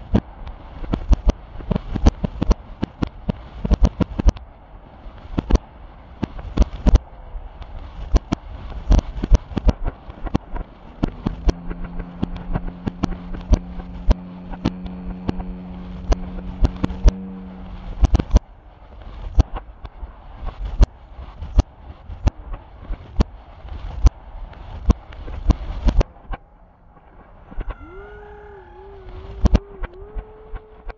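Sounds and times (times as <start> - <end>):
steady droning hum: 0.0 - 30.9
fireworks bursting with bangs: 7.6 - 26.4.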